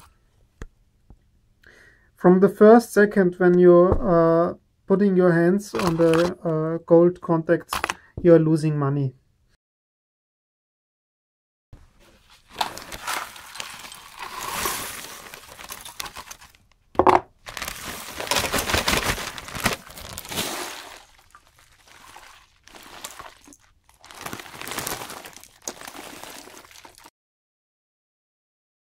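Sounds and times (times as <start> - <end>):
plastic bags crinkling and rustling: 5.7 - 6.4, 11.8 - 16.7, 17.4 - 27.1.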